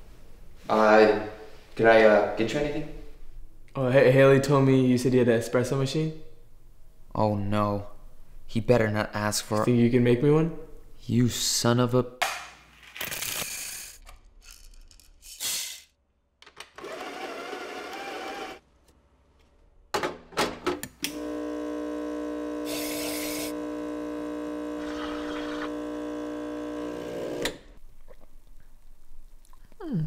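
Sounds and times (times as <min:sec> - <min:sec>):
espresso machine pump humming: 0:21.1 - 0:27.7.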